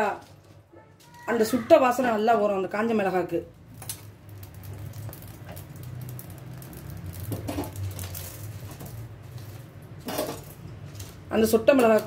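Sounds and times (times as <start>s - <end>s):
chillies crackling on grill: 0.0s - 12.0s
gas burner flame humming: 2.6s - 12.0s.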